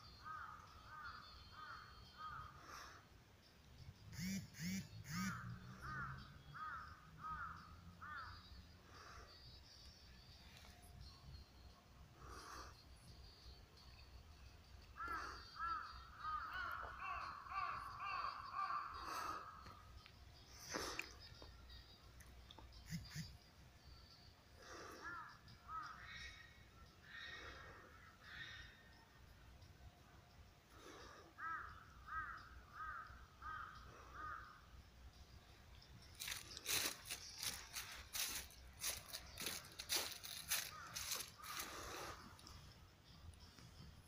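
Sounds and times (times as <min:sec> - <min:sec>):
crow cawing: 0:00.2 - 0:02.9, 0:04.2 - 0:08.5, 0:14.9 - 0:19.8, 0:24.6 - 0:28.8, 0:30.8 - 0:34.7, 0:36.2 - 0:42.3
sharp clicks and crunches: 0:36.2 - 0:41.7.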